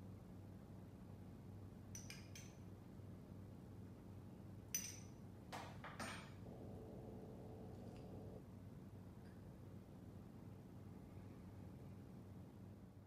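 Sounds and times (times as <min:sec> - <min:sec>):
spoon clinking on glassware: 0:01.9 - 0:02.6, 0:04.7 - 0:05.2.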